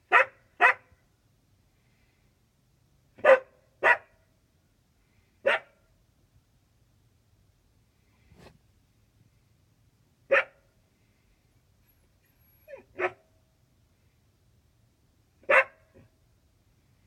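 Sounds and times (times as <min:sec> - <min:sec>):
dog barking: 0:00.1 - 0:01.0, 0:03.2 - 0:04.2, 0:05.4 - 0:05.8, 0:10.3 - 0:10.7, 0:12.7 - 0:13.3, 0:15.4 - 0:16.1.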